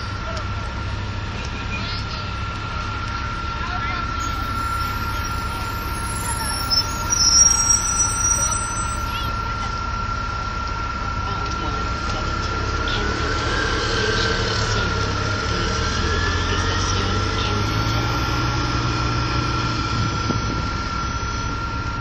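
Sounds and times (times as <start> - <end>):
bus engine drone: 0.0 - 22.0
high thin whine: 1.6 - 22.0.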